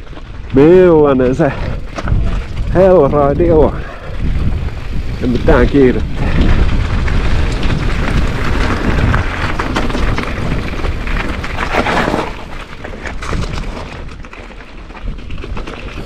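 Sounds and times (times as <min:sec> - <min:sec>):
bike clicking and rattling: 0:00.0 - 0:16.0
wind rumbling on microphone: 0:00.0 - 0:16.0
tyres crunching over rock: 0:05.9 - 0:16.0.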